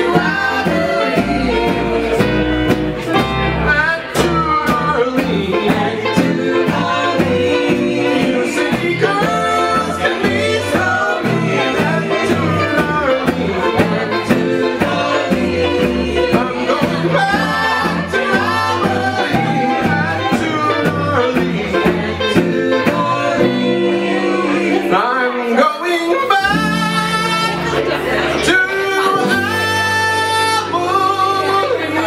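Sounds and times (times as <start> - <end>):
drum kit: 0.0 - 25.0
acoustic and electric guitars: 0.0 - 32.0
sliding lead melody: 0.0 - 32.0
upright bass notes: 0.0 - 32.0.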